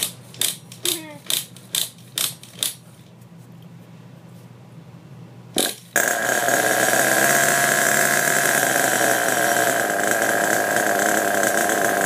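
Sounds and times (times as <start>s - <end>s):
rc car engine starting: 5.6s - 12.0s.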